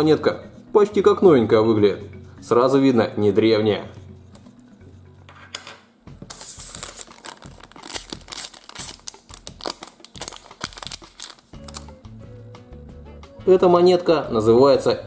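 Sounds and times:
soft background music: 0.0s - 15.0s
plastic packet crinkling: 6.3s - 12.0s.

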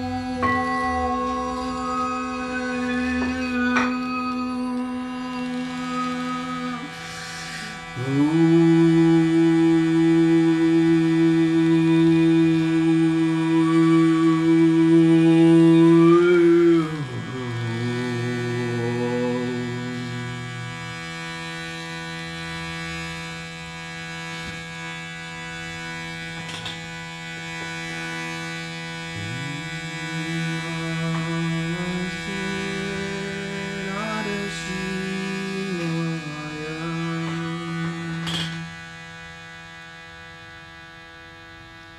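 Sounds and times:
overtone singing: 0.0s - 21.7s, 29.2s - 39.2s
shruti box drone: 0.0s - 41.9s.

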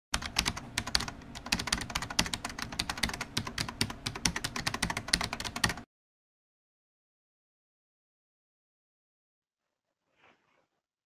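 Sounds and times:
keyboard typing clicks: 0.2s - 5.8s.

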